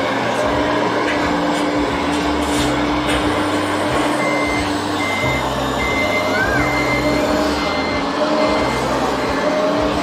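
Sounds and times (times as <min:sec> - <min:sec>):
low motor hum: 0:00.0 - 0:10.0
electronic reversing beeps: 0:03.8 - 0:10.0.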